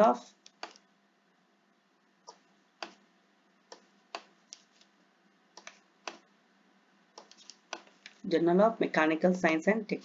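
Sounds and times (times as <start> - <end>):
computer mouse clicking: 0.4 - 0.9, 2.2 - 3.0, 3.7 - 4.9, 5.5 - 6.3, 7.1 - 8.2.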